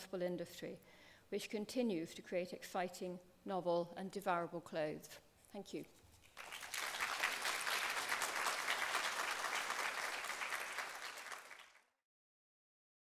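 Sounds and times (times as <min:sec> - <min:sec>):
audience applauding: 0:06.3 - 0:11.9.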